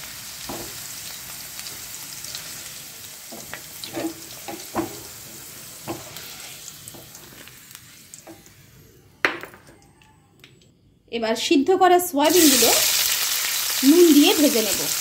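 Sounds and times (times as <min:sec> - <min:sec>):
potatoes sizzling in oil: 0:00.0 - 0:08.7, 0:12.2 - 0:15.0
wooden spatula scraping pan: 0:05.8 - 0:07.4.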